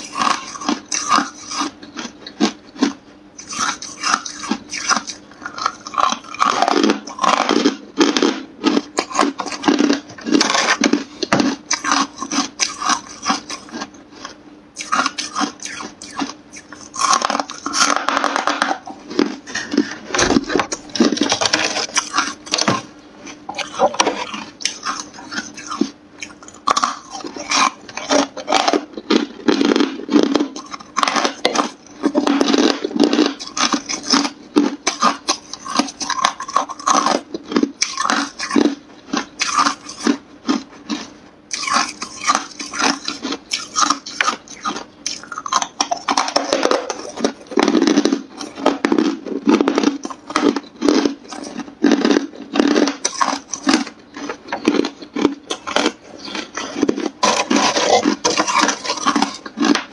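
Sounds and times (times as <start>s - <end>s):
ice being chewed: 0.0s - 59.9s
ice scraping and rattling: 45.5s - 59.8s.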